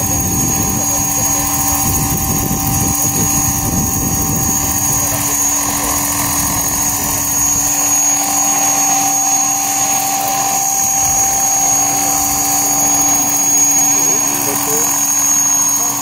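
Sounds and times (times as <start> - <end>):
model helicopter whine: 0.0 - 16.0.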